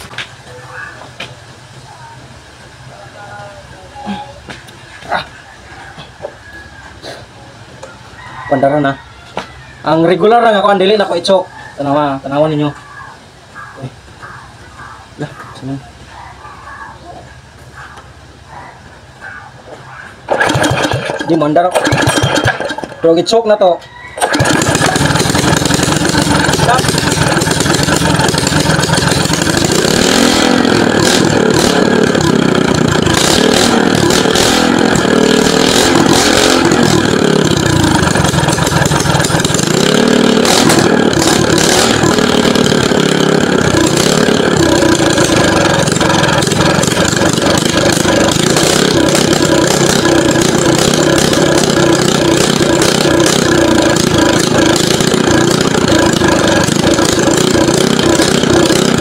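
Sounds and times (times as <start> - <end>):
small boat engine running: 20.3 - 23.0, 24.2 - 59.0.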